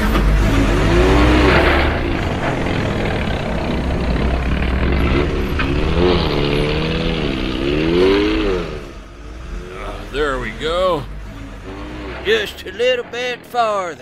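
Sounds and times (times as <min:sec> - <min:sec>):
truck engine revving: 0:00.0 - 0:14.0.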